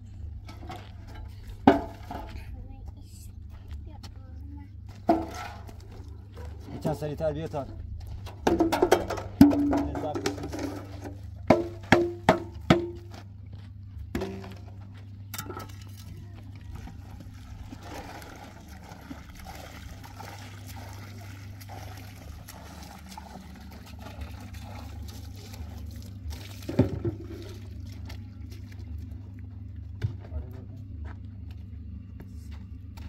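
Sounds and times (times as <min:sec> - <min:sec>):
steady low hum: 0:00.0 - 0:33.0
water pouring into sand: 0:17.7 - 0:28.6.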